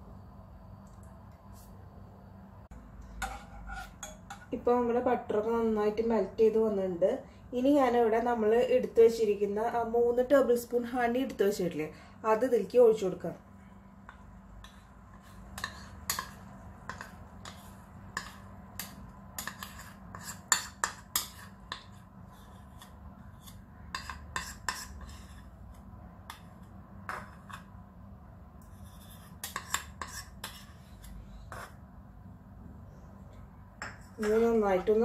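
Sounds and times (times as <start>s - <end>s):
metal spoon scraping a bowl: 3.0s - 4.6s, 14.6s - 25.6s, 28.6s - 31.8s.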